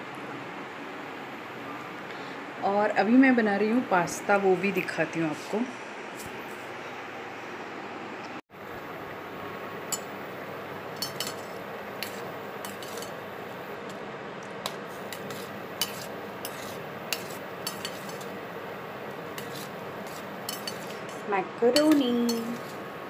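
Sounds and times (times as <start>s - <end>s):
steady background hiss: 0.0s - 23.0s
steel spoon clinking in pan: 9.9s - 10.1s, 11.0s - 13.2s, 15.1s - 18.3s, 19.4s - 22.8s.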